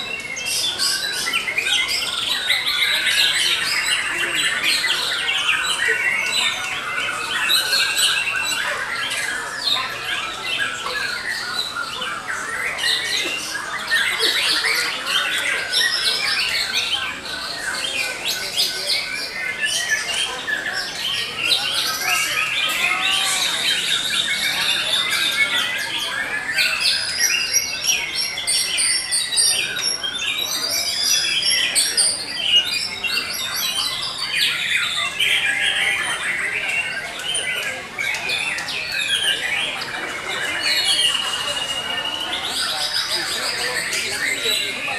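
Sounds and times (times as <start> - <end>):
caged songbirds singing: 0.0 - 44.9.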